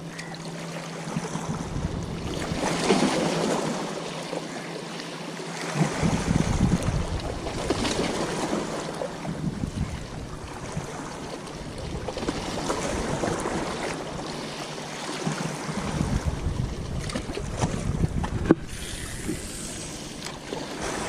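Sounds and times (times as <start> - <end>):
waves lapping against rocks: 0.0 - 21.0
wind buffeting the microphone: 1.4 - 2.6, 5.8 - 8.1, 9.2 - 11.0, 15.7 - 19.7.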